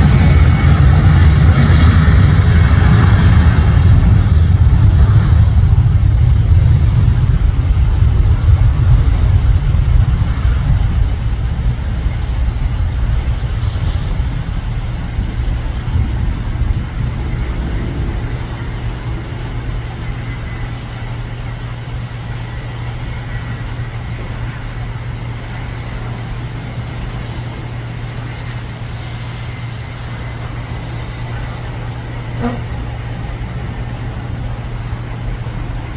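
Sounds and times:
jet engines roaring at takeoff: 0.0 - 35.9.

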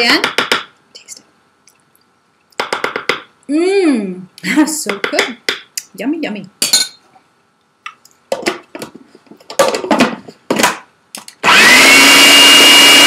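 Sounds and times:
food processor motor whining: 11.4 - 13.0.

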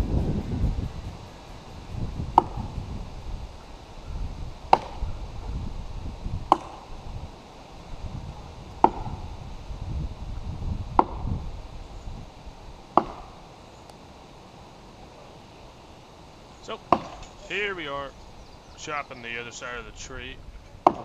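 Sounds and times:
axe chopping into tree trunk: 2.4 - 2.6, 4.7 - 5.0, 6.5 - 6.8, 8.8 - 9.1, 11.0 - 11.2, 13.0 - 13.3, 16.9 - 17.3.

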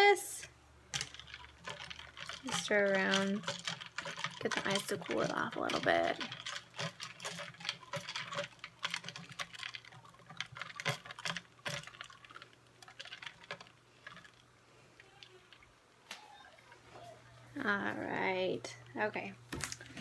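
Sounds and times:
ice cubes clinking in a tumbler: 0.9 - 15.7.

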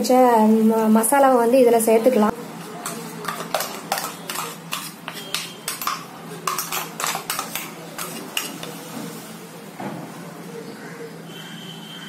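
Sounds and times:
spoon scraping inside a jar: 2.7 - 8.6.

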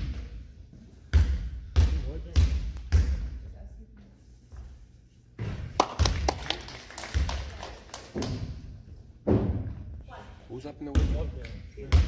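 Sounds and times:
basketball bouncing on hardwood floor: 1.1 - 3.4, 10.9 - 11.2.

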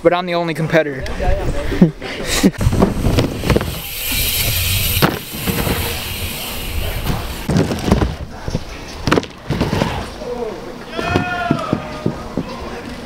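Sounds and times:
hissing surge: 2.6 - 7.5.

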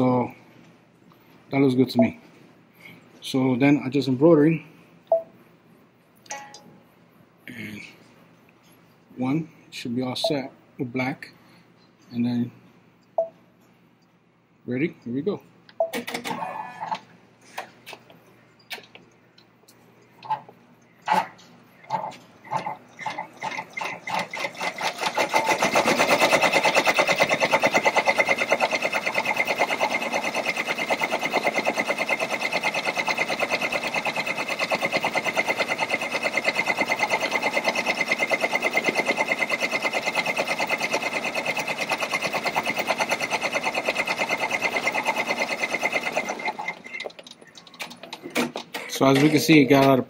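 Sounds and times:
embroidery machine stitching: 21.1 - 49.3.

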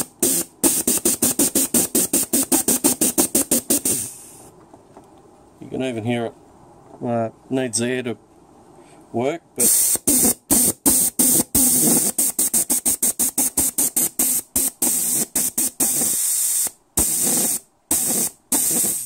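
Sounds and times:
compressed air hissing bursts: 0.0 - 4.5, 9.6 - 19.0.

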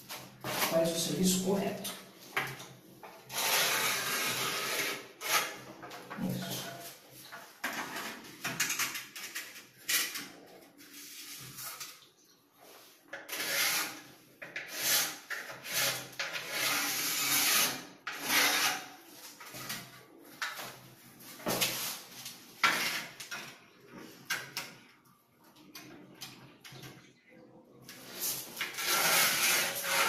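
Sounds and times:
pencil scratching on rough wall: 13.3 - 14.0, 28.2 - 30.0
spirit level scraping wall: 27.9 - 30.0.

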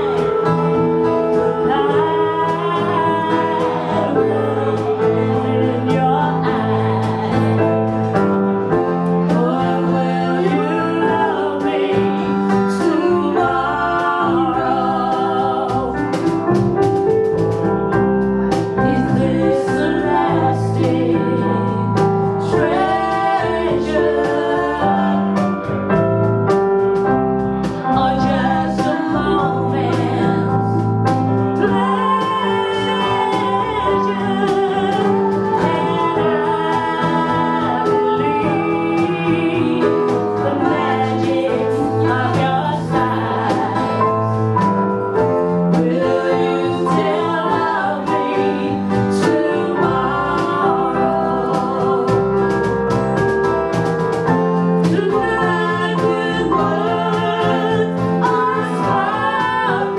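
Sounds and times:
man and woman singing: 0.0 - 16.5, 18.5 - 25.8, 27.6 - 53.2, 54.6 - 59.9
electric guitars: 0.0 - 59.9
electric keyboard: 0.0 - 59.9.

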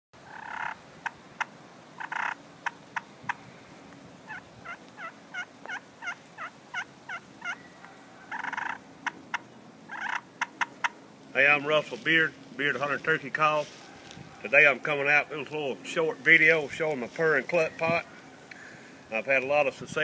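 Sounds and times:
turkey call clucks and yelps: 0.2 - 3.5, 4.2 - 11.0.

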